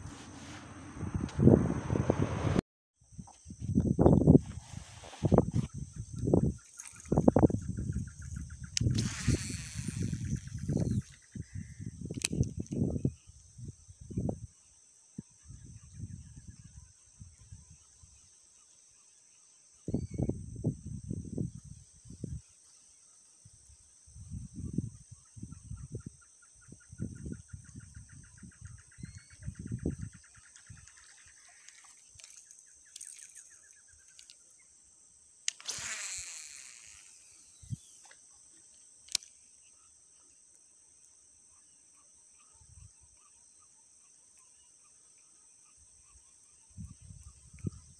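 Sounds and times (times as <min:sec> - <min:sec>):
wind rumbling on microphone: 0:00.0 - 0:14.6, 0:15.2 - 0:17.8, 0:19.9 - 0:22.5, 0:23.5 - 0:31.0, 0:46.7 - 0:47.9
high insect buzz: 0:03.4 - 0:26.0, 0:26.7 - 0:47.9
bird trilling: 0:08.9 - 0:11.8.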